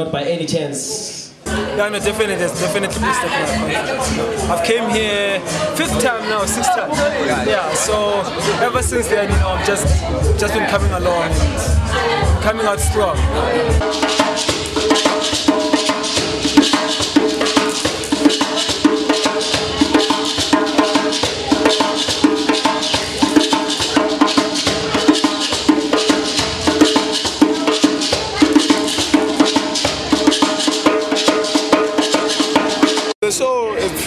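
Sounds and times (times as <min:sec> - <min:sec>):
djembe hand drumming: 0:01.5 - 0:33.2
hand shakers: 0:14.1 - 0:33.1.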